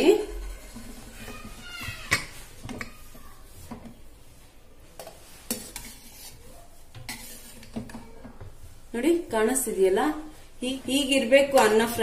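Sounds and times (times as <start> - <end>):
spoon stirring cooked rice: 0.2 - 8.7.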